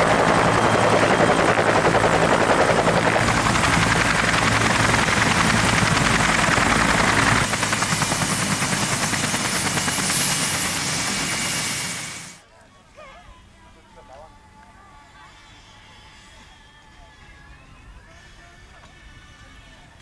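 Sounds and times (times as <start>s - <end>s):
helicopter rotor chopping: 0.0s - 12.4s.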